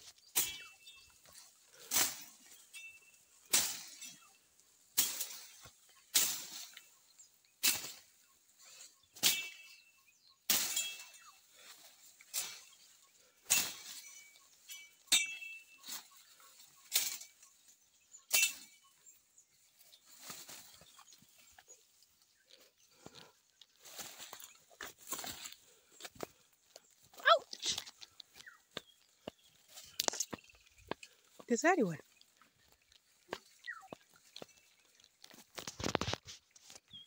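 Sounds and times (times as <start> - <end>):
rustle of brushed vegetation: 0.0 - 27.0, 27.6 - 37.0
footsteps crunching on dry leaves: 19.7 - 36.6.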